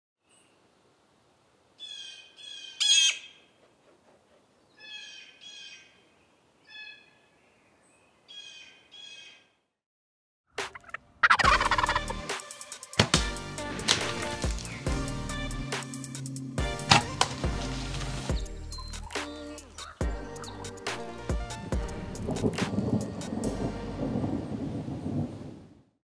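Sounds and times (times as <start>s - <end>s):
bird calling: 1.8s - 3.6s, 4.6s - 9.6s, 14.0s - 21.0s
loud music: 11.4s - 24.0s.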